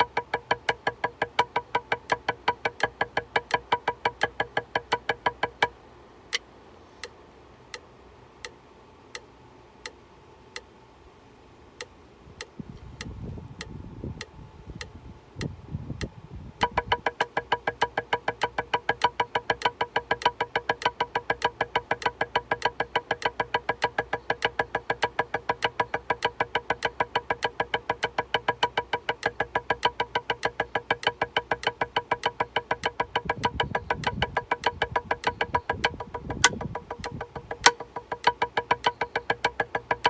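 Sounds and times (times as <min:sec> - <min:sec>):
metronome clicking: 0:00.0 - 0:10.7, 0:11.8 - 0:40.0
drumsticks on practice pad: 0:00.0 - 0:10.8, 0:11.6 - 0:40.0
low muffled noise: 0:05.7 - 0:16.7.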